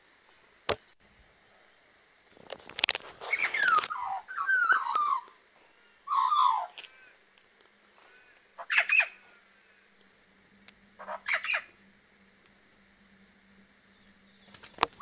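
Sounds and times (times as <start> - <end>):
magpie warbling call: 3.3 - 5.3, 6.1 - 7.1, 8.6 - 9.2, 11.0 - 11.8.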